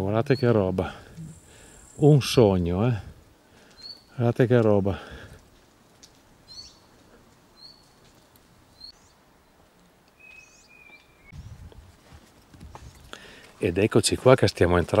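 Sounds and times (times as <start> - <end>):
songbird chirping: 0.1 - 4.8, 6.0 - 11.7.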